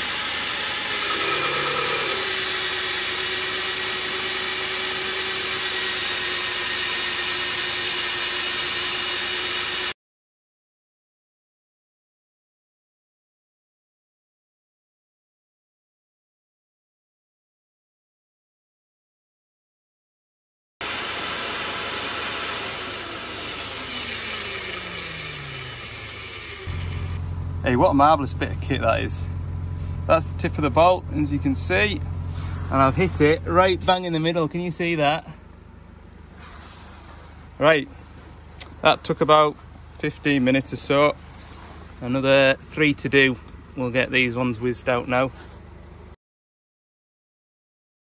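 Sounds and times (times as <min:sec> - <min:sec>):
magnetic drill drilling metal: 0:00.0 - 0:10.0, 0:20.8 - 0:28.7.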